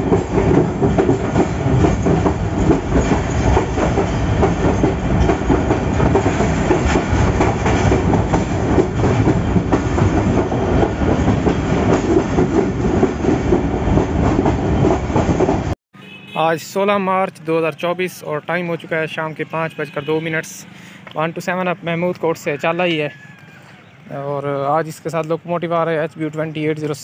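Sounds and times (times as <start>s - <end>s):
wheels clattering over track: 0.0s - 15.6s
locomotive engine rumble: 0.0s - 15.7s.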